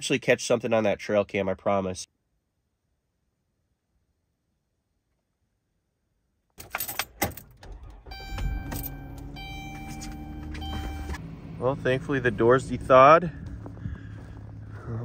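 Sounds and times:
keys jangling: 6.6 - 7.5, 8.5 - 10.6
car engine starting and running: 6.6 - 15.0.

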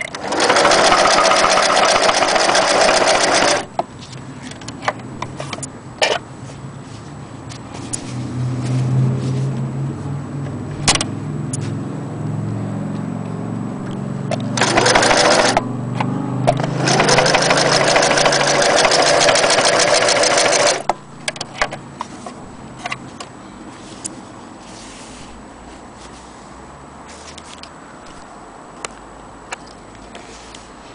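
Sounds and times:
sewing machine stitching: 0.0 - 3.7, 14.5 - 15.7, 16.5 - 20.9.

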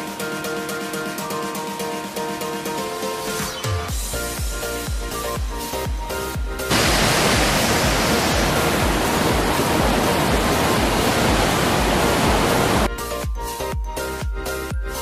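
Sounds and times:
water rushing over rocks: 6.7 - 12.9.

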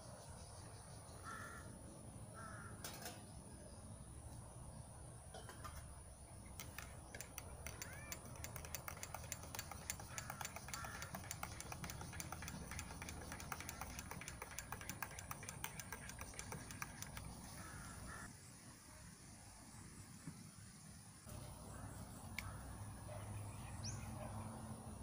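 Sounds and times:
rapid light clicking: 6.5 - 18.3.

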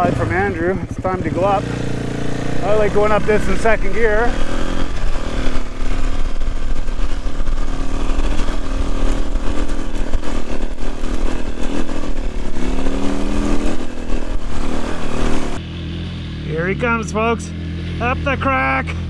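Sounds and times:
dirt bike engine revving: 0.0 - 19.0
rattle of the ride: 2.8 - 15.6.

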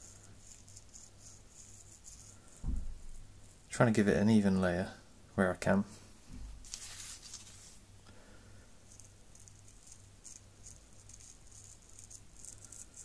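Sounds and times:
faint gritty rustles: 5.9 - 7.9.

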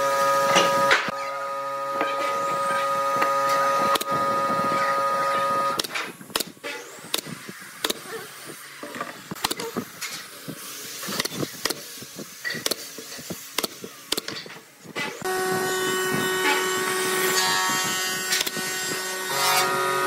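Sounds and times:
nail gun clacking: 5.8 - 8.1, 9.4 - 9.7, 13.6 - 14.4.

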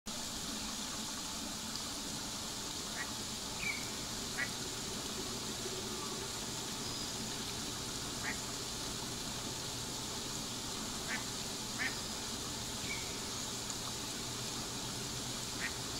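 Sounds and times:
outdoor background hum: 0.1 - 15.9
ducks calling: 2.9 - 4.6, 8.1 - 8.5, 11.0 - 12.0, 15.6 - 15.8.

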